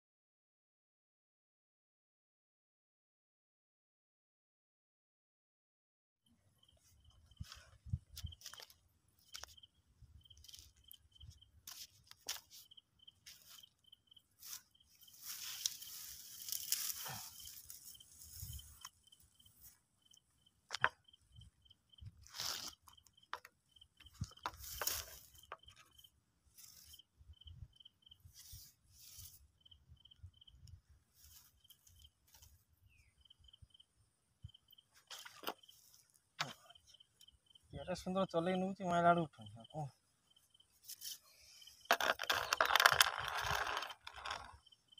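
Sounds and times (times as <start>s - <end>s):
insect chirping in pulses: 6.6s - 11.6s, 12.2s - 30.6s, 31.2s - 38.2s, 39.2s - 44.9s
grass rustling and swishing: 14.4s - 19.0s, 22.2s - 22.8s, 24.6s - 25.4s, 28.2s - 29.5s.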